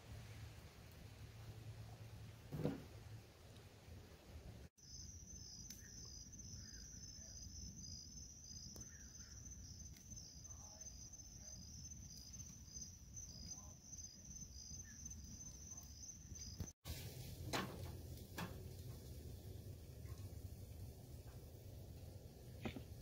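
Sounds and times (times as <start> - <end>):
insect high trill: 4.8 - 16.8
wood fire popping: 4.8 - 23.0.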